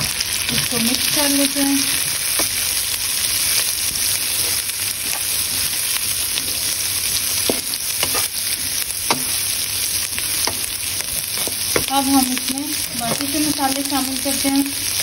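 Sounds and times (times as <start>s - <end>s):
vegetables sizzling in oil: 0.0s - 15.0s
spatula knocking and scraping pan: 2.0s - 2.7s, 3.5s - 9.6s, 10.2s - 12.3s, 12.9s - 13.6s.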